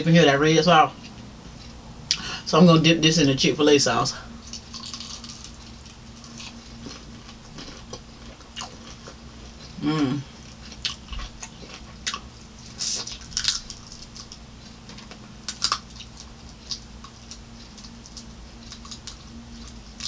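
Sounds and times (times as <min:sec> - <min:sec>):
faint low hum: 0:00.0 - 0:20.0
chewing crunchy fried food: 0:04.4 - 0:20.0.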